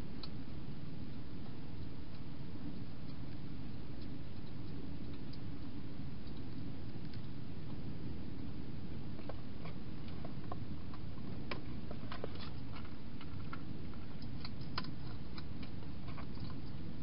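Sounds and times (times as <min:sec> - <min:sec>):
low background noise: 0:00.0 - 0:17.0
hedgehog crunching dry food: 0:09.2 - 0:16.7.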